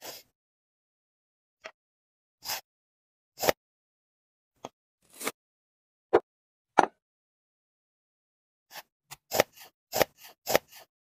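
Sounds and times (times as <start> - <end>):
blade chopping through sausage: 8.7 - 10.9.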